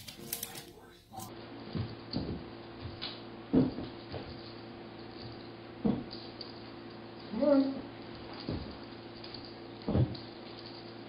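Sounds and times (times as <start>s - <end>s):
dull thumps: 1.7s - 4.5s, 5.2s - 6.3s, 8.2s - 8.9s, 9.8s - 10.4s.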